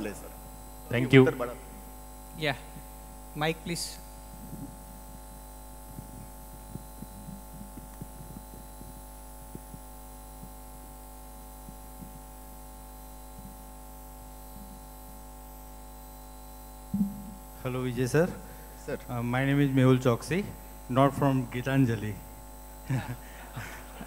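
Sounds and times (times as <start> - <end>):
electrical mains hum: 0.0 - 24.0
faint low knocks and rustles: 4.3 - 10.6.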